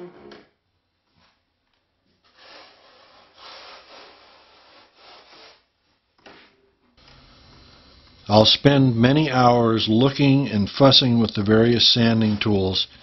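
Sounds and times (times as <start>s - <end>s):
hand rubbing foam surface: 2.2s - 6.1s.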